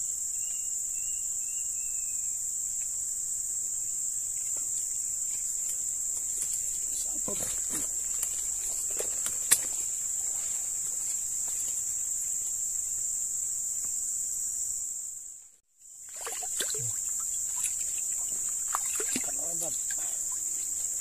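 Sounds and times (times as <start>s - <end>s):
insect chorus droning: 0.0s - 21.0s.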